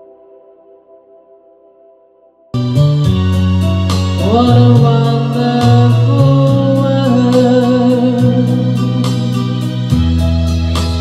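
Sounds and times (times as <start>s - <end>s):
keyboard accompaniment: 0.0s - 11.0s
bass notes: 2.6s - 11.0s
light steady beat: 2.6s - 11.0s
woman singing with vibrato: 4.2s - 9.9s.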